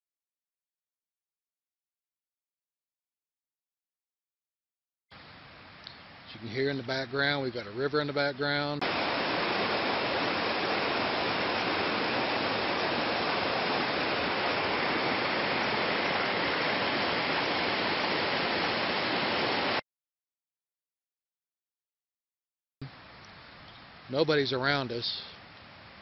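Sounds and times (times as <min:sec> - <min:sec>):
creek rushing over rocks: 0:08.8 - 0:19.8.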